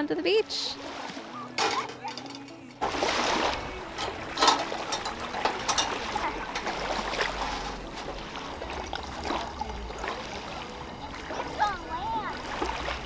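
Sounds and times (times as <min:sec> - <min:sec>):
small waves lapping: 0:00.0 - 0:13.0
metal cookware clicks and knocks: 0:01.6 - 0:02.6, 0:04.0 - 0:06.7.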